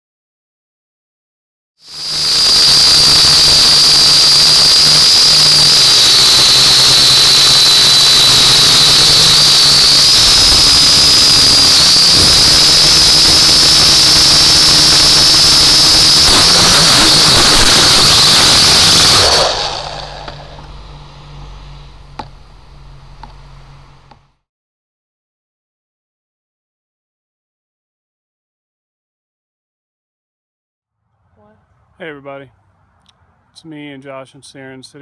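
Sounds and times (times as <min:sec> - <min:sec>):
drone motors whining: 0:01.8 - 0:24.4
rough rush of noise: 0:01.9 - 0:24.3.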